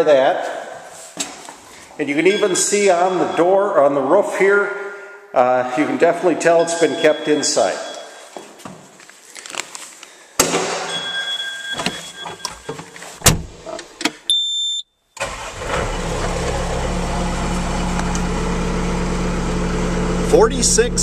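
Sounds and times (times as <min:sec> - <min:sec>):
short electronic beep: 0:14.3 - 0:14.8
diesel engine starting and idling: 0:15.2 - 0:21.0.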